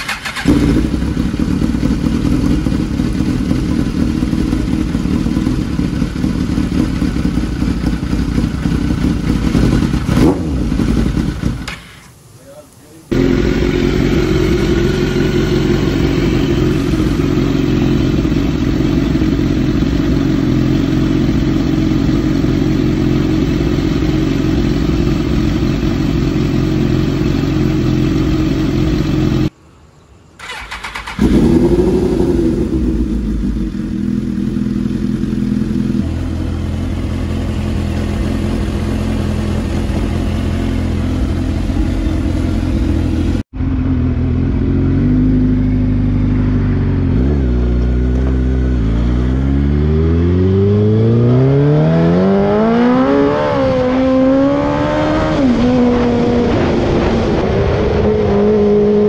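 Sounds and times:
motorcycle engine idling: 0.0 - 12.0, 13.1 - 29.5, 30.4 - 49.4
motorcycle engine starting and revving: 0.0 - 12.2, 13.0 - 29.5, 30.4 - 59.0.

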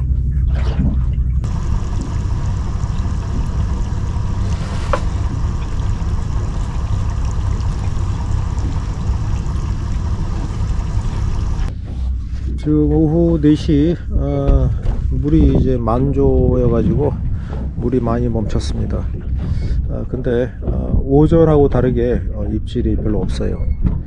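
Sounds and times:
deep rumble: 0.0 - 24.0
wind and sea water rushing: 0.7 - 11.7.

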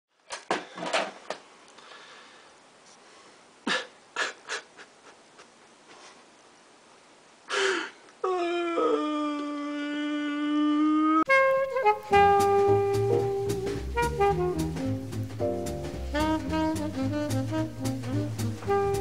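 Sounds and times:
man breathing heavily: 1.8 - 4.8, 7.5 - 8.0
music with horn note: 11.3 - 19.0.

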